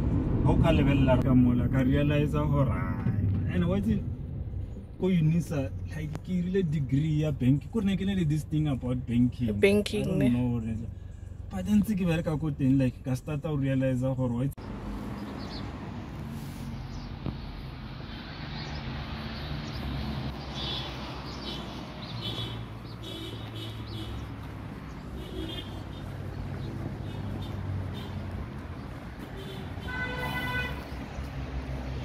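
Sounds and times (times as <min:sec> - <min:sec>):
traffic hum: 0:00.0 - 0:32.0
birds chirping: 0:14.6 - 0:31.7.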